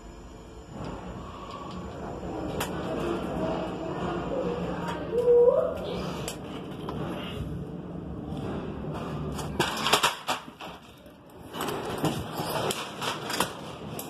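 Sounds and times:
elevator humming: 0.0 - 9.7.

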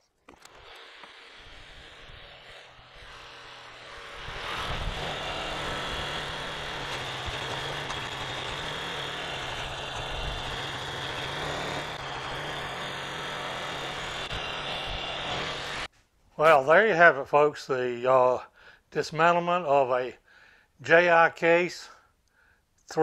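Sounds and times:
tractor engine running: 0.0 - 15.9.

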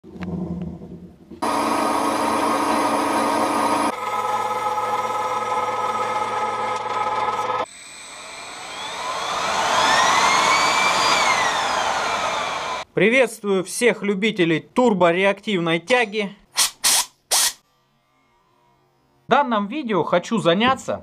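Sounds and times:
metal lathe running: 1.4 - 12.8
rotor shaft high whine: 1.4 - 12.8.

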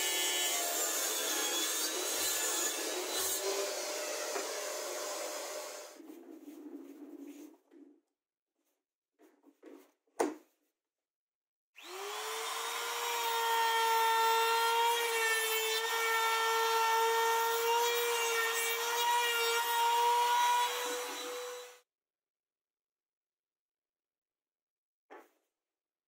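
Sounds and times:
router whining: 11.8 - 21.8.

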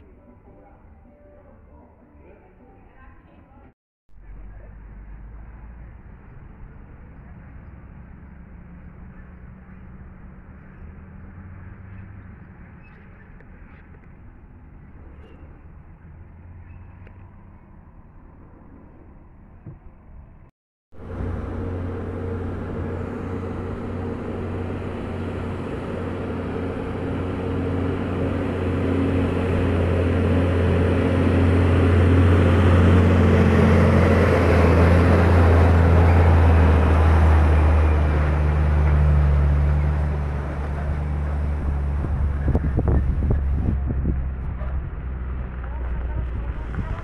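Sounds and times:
diesel truck engine under load: 20.9 - 47.0.

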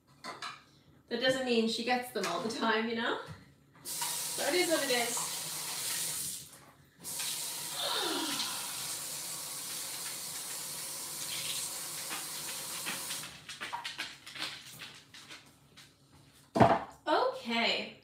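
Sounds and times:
faucet running into sink: 3.9 - 13.2.

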